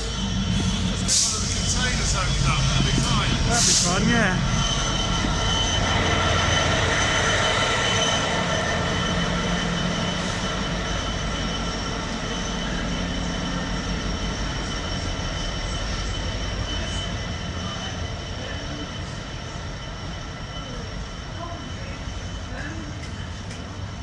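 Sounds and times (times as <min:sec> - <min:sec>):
diesel locomotive engine whining: 0:00.0 - 0:24.0.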